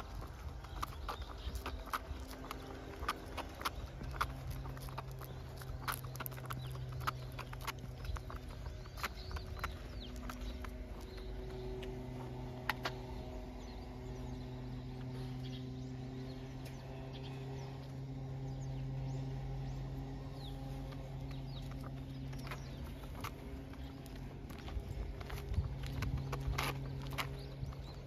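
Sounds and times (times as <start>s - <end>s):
low machine hum: 0.0s - 28.0s.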